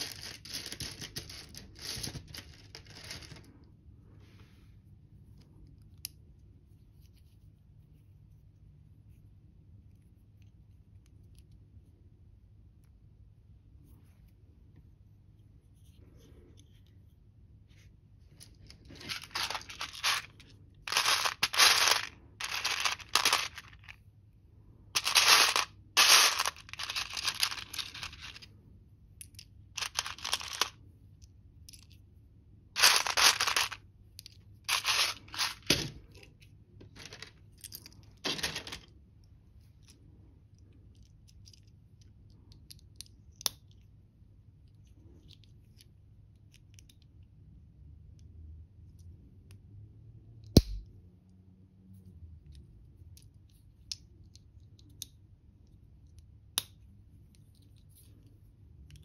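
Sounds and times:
plastic pieces rattling in a tray: 0.0 - 3.4, 18.9 - 23.9, 25.0 - 28.4, 29.8 - 30.8, 32.8 - 33.8, 34.7 - 35.9, 38.2 - 38.9.

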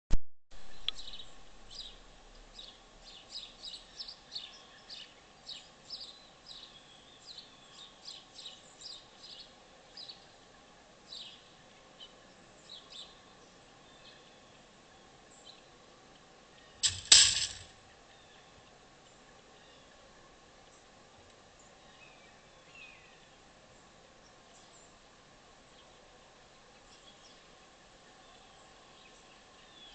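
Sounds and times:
small birds chirping: 0.7 - 10.3
metal cage door slamming shut: 16.8 - 17.7.

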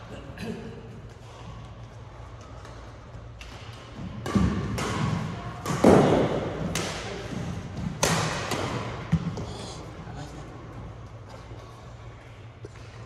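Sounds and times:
racket striking shuttlecock: 3.4 - 9.3.

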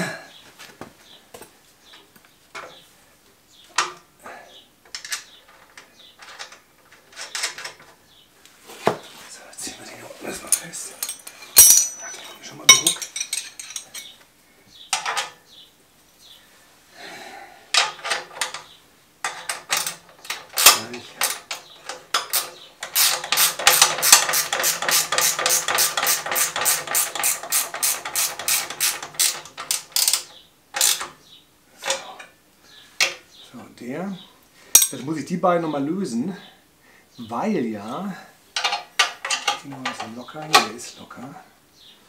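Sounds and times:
metal tools clinking: 10.4 - 14.2, 34.7 - 35.1, 38.6 - 40.7
ratchet wrench clicking: 22.3 - 31.1.

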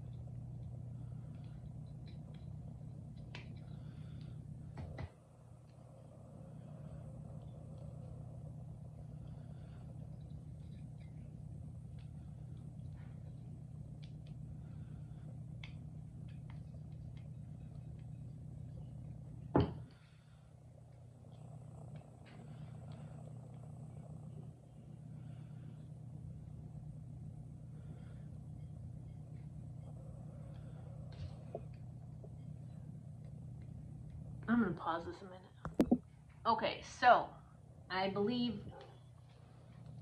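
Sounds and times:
steady low hum: 0.0 - 40.0
small clicks and taps: 10.2 - 14.4, 15.5 - 18.8.

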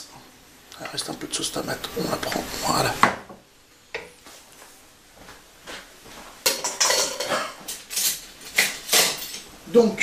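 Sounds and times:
utensils and dishes clinking: 6.4 - 9.5.

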